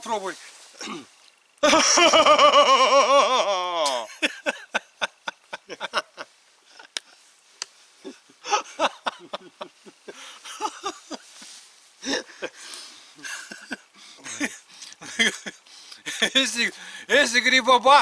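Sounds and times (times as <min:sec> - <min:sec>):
laughter: 0:01.6 - 0:07.1, 0:08.0 - 0:12.6, 0:13.2 - 0:16.4.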